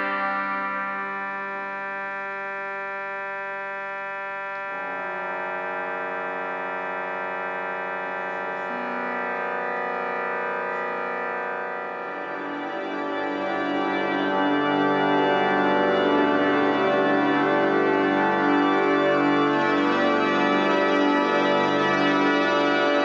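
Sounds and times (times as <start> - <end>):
organ holding chords: 0.0 - 23.0.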